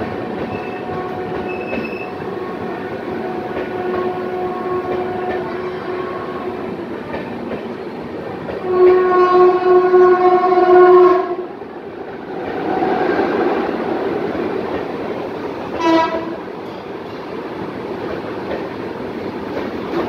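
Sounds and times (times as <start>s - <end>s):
train horn: 0.0s - 6.8s, 8.6s - 11.5s, 15.7s - 16.5s
train coaches rumbling past: 0.0s - 20.0s.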